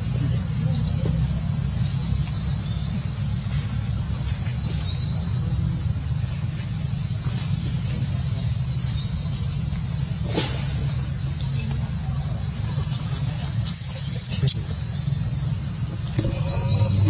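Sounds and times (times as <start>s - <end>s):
insects buzzing: 0.0s - 17.0s
low rumble: 15.2s - 17.0s.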